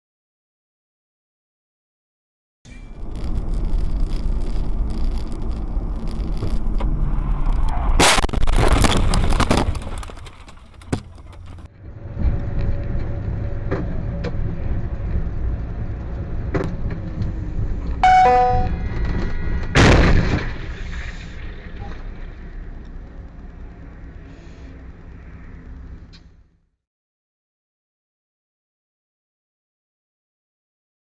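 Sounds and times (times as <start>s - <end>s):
brief tone: 2.7s - 3.0s, 18.0s - 19.0s
car engine and road noise: 2.7s - 26.8s
car collision crunching: 7.4s - 11.7s.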